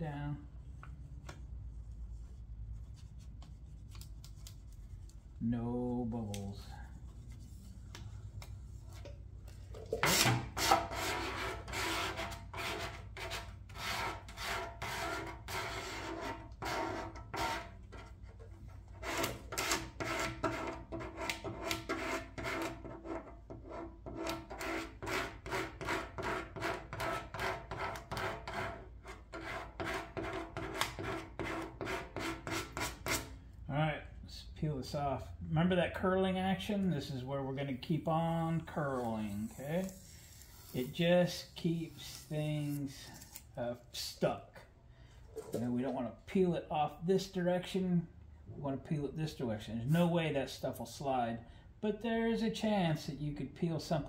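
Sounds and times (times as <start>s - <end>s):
plastic squeegee rubbing over vinyl: 38.6s - 43.4s.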